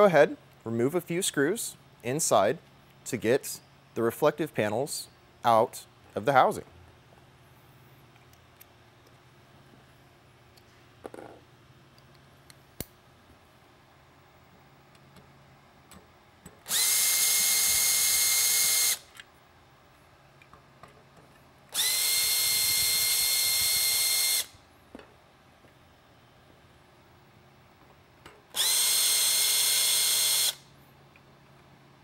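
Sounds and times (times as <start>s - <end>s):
cordless drill motor whining: 16.7s - 19.0s, 21.7s - 24.5s, 28.6s - 30.6s.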